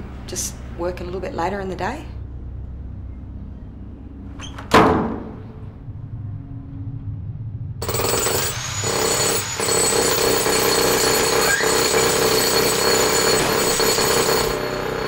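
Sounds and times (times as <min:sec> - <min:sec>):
jackhammer hammering: 0:07.8 - 0:15.0.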